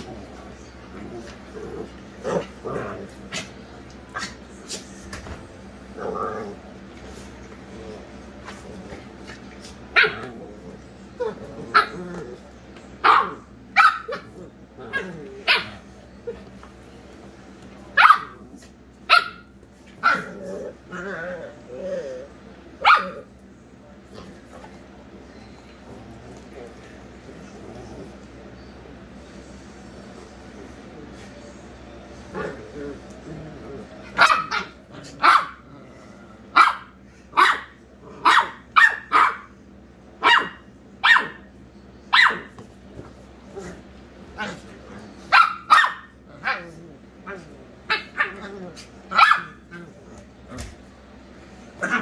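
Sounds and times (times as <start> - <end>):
small dogs barking: 9.9 - 10.5, 11.4 - 12.2, 13.0 - 16.0, 17.9 - 20.6, 22.8 - 23.3, 34.1 - 35.7, 36.5 - 39.6, 40.2 - 41.5, 42.1 - 42.6, 44.4 - 49.8
dog barking: 13.0 - 14.2, 18.0 - 18.4, 22.8 - 23.2, 34.2 - 35.6, 36.6 - 39.5, 40.2 - 41.4, 42.1 - 42.5, 45.3 - 46.6, 49.1 - 49.6.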